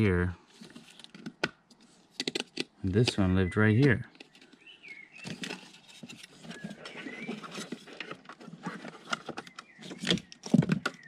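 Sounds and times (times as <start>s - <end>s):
plastic connectors clicking and rattling: 0.8s - 3.2s.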